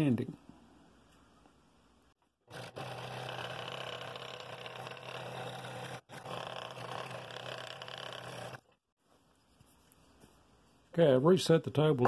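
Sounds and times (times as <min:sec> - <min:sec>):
scroll saw cutting wood: 0:02.4 - 0:08.8.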